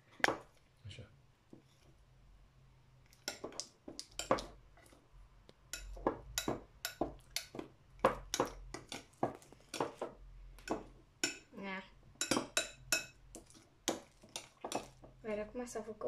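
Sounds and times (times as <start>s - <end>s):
metal spoon clinking in bowl: 5.7s - 7.5s, 12.2s - 14.9s.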